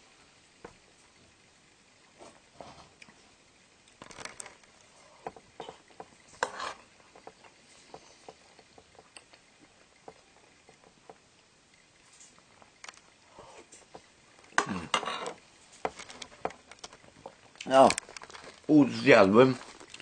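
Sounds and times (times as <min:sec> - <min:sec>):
man eating soup: 0:12.4 - 0:18.7.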